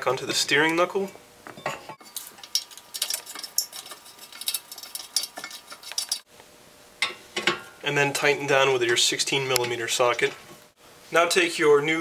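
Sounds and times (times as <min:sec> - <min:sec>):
light metallic clicks and scrapes: 0:02.0 - 0:06.3.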